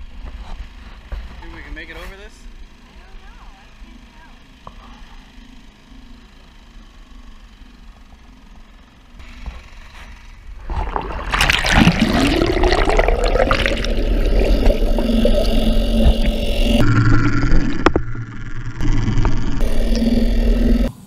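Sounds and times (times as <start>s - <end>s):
water rushing and gurgling underwater: 10.6s - 20.9s
rising whine: 10.6s - 21.0s.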